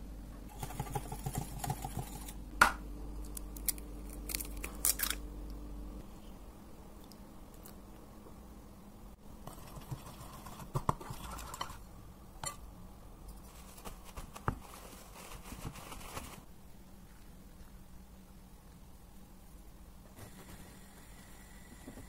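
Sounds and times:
whisk scraping in a bowl: 0:00.5 - 0:02.4, 0:09.5 - 0:11.8.

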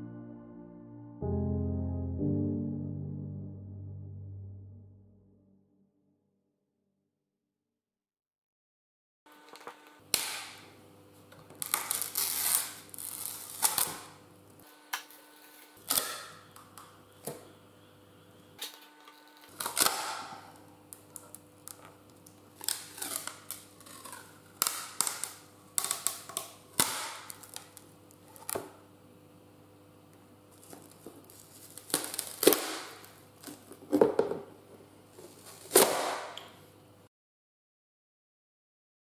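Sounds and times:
plastic cracking and snapping: 0:11.5 - 0:14.1, 0:19.5 - 0:28.6, 0:30.6 - 0:33.6
plastic crinkling: 0:11.6 - 0:14.0, 0:21.0 - 0:28.6, 0:30.5 - 0:33.7
faint steady hum: 0:15.9 - 0:19.8.

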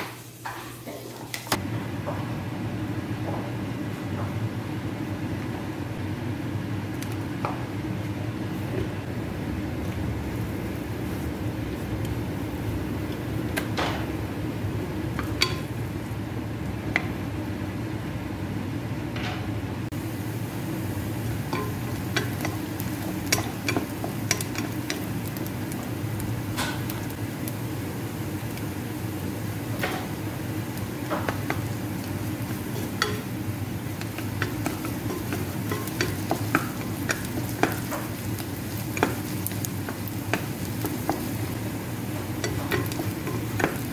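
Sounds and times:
steady low hum: 0:01.6 - 0:43.9
onion frying in oil: 0:05.9 - 0:18.8, 0:19.8 - 0:43.9
spatula scraping and tapping pan: 0:21.5 - 0:25.8, 0:31.0 - 0:33.3, 0:33.9 - 0:41.6, 0:42.2 - 0:43.9.

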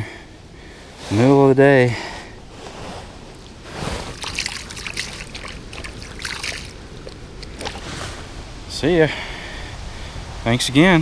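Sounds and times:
water sloshing and splashing: 0:02.4 - 0:08.4.

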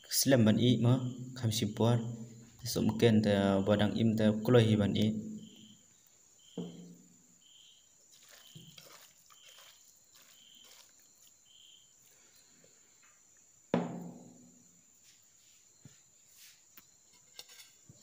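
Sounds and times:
faint high chirp: 0:05.0 - 0:13.2
hand mixing meat in steel bowl: 0:08.1 - 0:11.5.

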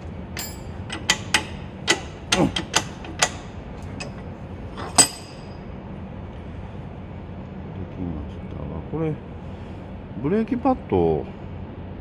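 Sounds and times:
sharp metallic clicks and knocks: 0:00.3 - 0:04.2
ringing metal clink: 0:00.4 - 0:01.1, 0:04.8 - 0:05.7.

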